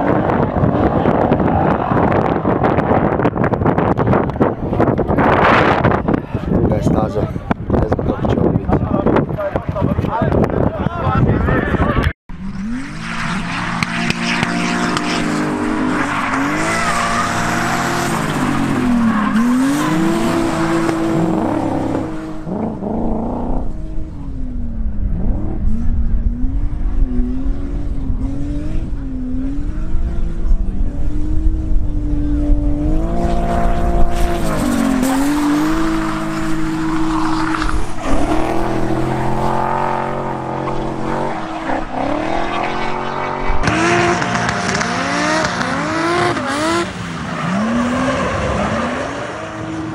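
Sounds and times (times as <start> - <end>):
car engine revving hard: 12.4 - 24.3, 25.2 - 49.9.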